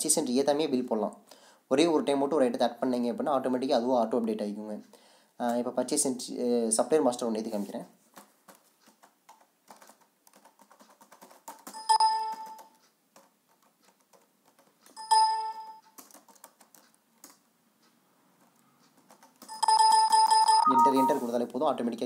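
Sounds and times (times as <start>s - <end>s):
computer keyboard typing: 8.2s - 17.4s, 18.4s - 21.1s
short electronic chime: 20.5s - 21.3s.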